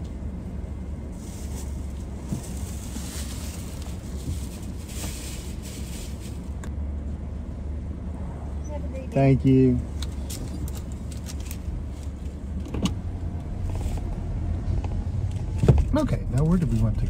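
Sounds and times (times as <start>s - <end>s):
car engine idling: 0.0s - 17.0s
rustling: 1.0s - 6.7s.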